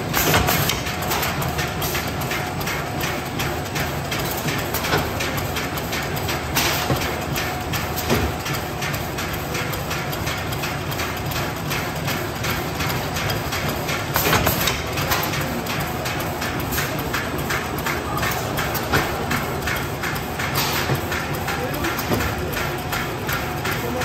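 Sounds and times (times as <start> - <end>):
rapid machine clacking: 0.0 - 24.0.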